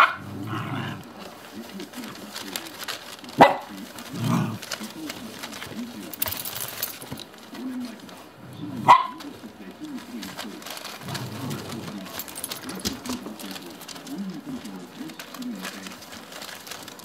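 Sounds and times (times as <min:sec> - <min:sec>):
puppies growling and yipping: 0:00.0 - 0:01.2, 0:04.0 - 0:04.8, 0:11.0 - 0:12.6.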